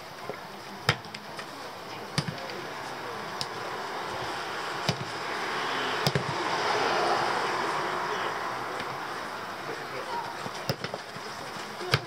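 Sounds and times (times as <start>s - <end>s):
football kick thuds: 2.2s - 2.5s, 4.8s - 5.2s, 6.0s - 6.4s, 10.3s - 12.0s
passing vehicle: 2.5s - 10.7s.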